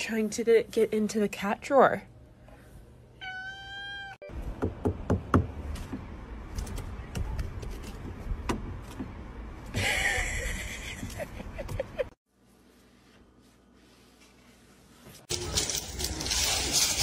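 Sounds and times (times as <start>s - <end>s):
cat meowing: 3.2s - 4.2s.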